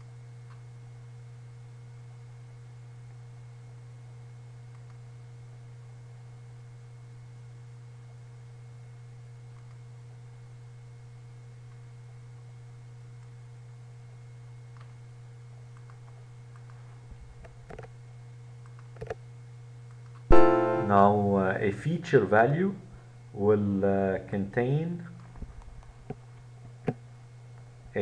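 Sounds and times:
low electrical hum: 0.0 - 28.0
computer mouse and keyboard clicks: 4.7 - 5.0, 15.7 - 16.8, 18.6 - 19.2.

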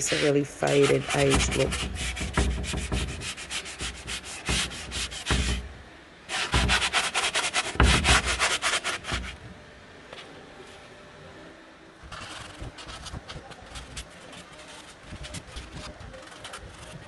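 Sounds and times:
sanding pad scratching wood: 0.0 - 5.6, 6.3 - 9.4, 12.1 - 17.0.

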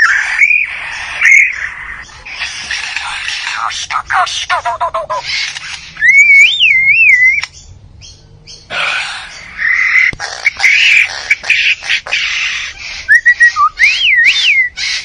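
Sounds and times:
bird whistling: 0.0 - 2.5, 5.0 - 7.6, 8.8 - 15.0
bird rasping calls: 0.0 - 7.5, 8.5 - 15.0
sharp clicks: 5.4 - 5.9, 7.3 - 7.6.

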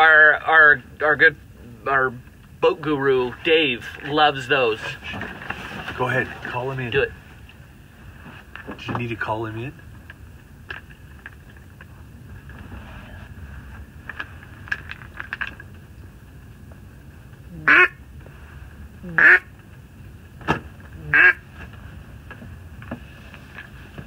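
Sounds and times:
duck call quacks: 17.6 - 18.0, 19.1 - 19.5, 21.0 - 21.4.

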